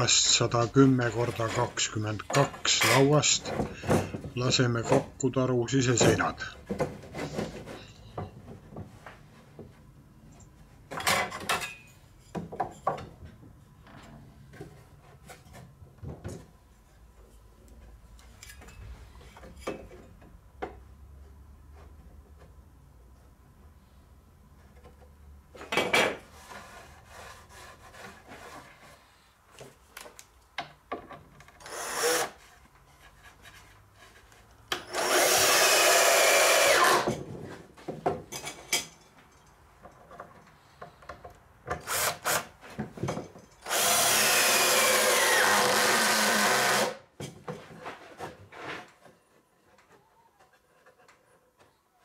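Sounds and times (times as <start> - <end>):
drill driving screws into wood: 31.6 - 32.4, 34.7 - 37.2, 41.8 - 42.5, 43.6 - 47.0.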